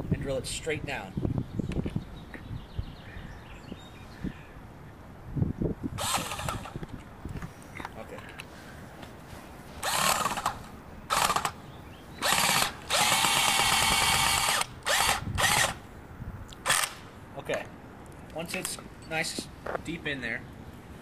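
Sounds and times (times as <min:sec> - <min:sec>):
power drill driving screw: 0:06.0 - 0:06.8, 0:09.8 - 0:11.6, 0:12.2 - 0:15.8, 0:16.7 - 0:17.0.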